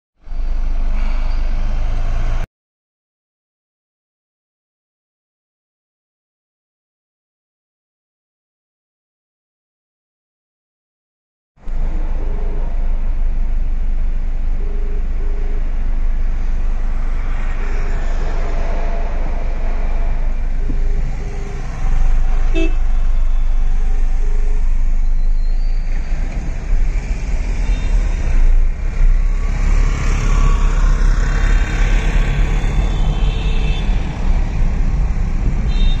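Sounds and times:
traffic engines rumbling: 0.2 - 2.5, 11.6 - 36.0
car horn toots: 22.5 - 23.0, 35.7 - 36.0.

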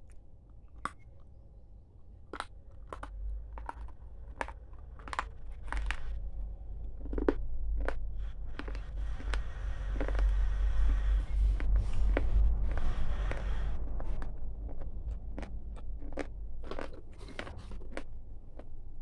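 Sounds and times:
snack crunching while chewed: 0.0 - 1.3, 2.3 - 18.8
low rumble: 0.0 - 19.0.

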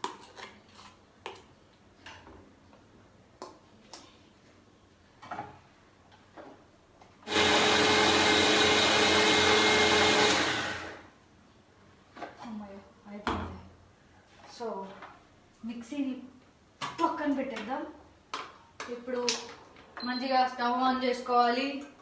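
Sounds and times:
mixer grinder motor whining: 7.2 - 11.1.

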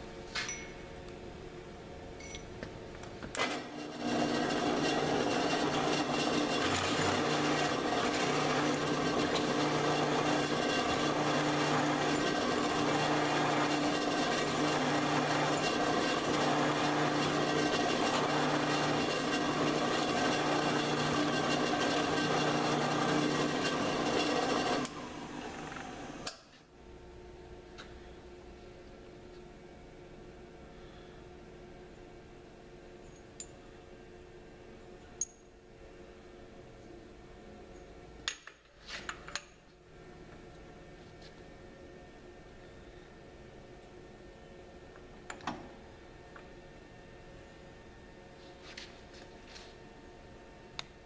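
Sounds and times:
drill press cutting metal: 3.4 - 26.3.

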